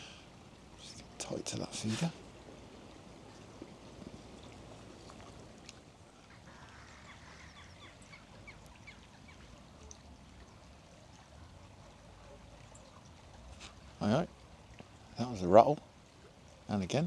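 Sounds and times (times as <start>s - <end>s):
faint bird calls: 6.1s - 10.0s.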